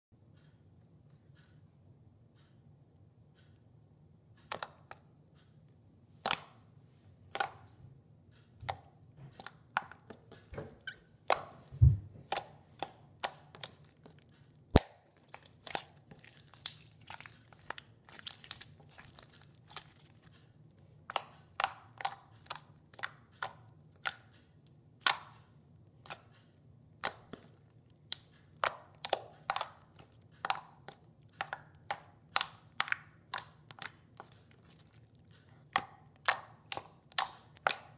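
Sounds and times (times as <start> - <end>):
slime clicking and popping: 6.2 - 6.6, 7.3 - 7.8, 12.3 - 20.3, 21.1 - 24.4, 25.0 - 26.4, 27.0 - 37.9.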